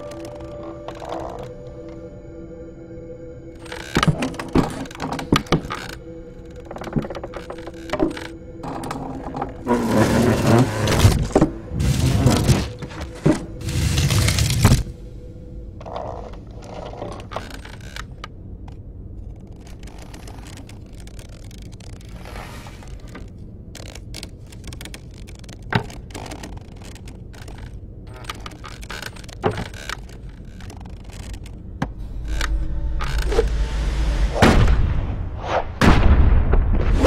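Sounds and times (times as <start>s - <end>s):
low steady hum: 0.0s - 37.0s
small clicks and knocks: 22.8s - 33.5s.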